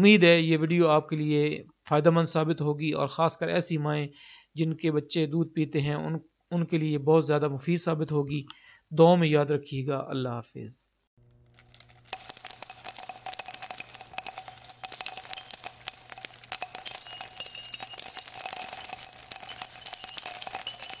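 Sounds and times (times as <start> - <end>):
jingle bells shaking: 11.6 - 21.0.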